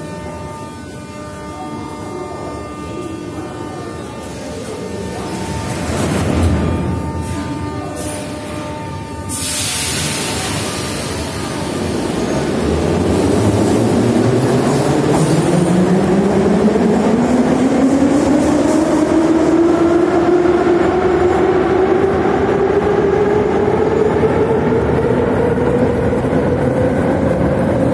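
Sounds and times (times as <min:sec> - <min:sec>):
train wheels on rails: 0:04.0 - 0:27.9.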